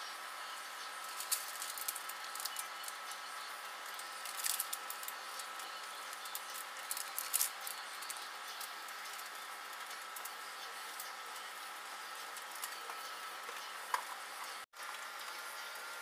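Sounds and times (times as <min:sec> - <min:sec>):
microwave oven humming: 0:00.0 - 0:16.0
pork rinds crackling and popping: 0:01.1 - 0:03.1, 0:03.8 - 0:13.0.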